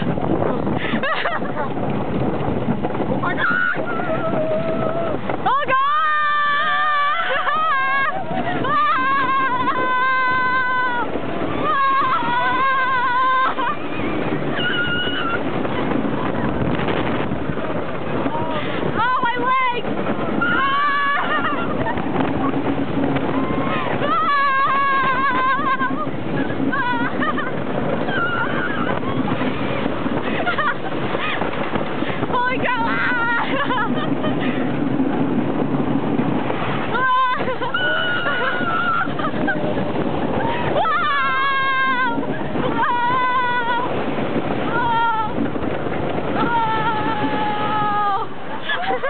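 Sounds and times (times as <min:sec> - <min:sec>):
roller coaster train rumbling: 0:00.0 - 0:49.0
wind rushing: 0:00.0 - 0:49.0
riders screaming: 0:03.2 - 0:15.9, 0:18.2 - 0:29.4, 0:36.8 - 0:44.0, 0:44.6 - 0:45.5, 0:46.3 - 0:49.0.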